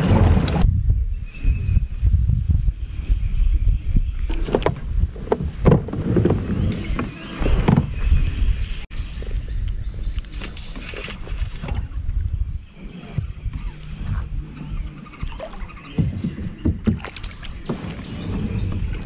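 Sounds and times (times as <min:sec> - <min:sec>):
wind rumbling on microphone: 0:00.0 - 0:19.0
knocks and splashes: 0:04.3 - 0:08.0, 0:15.2 - 0:19.0.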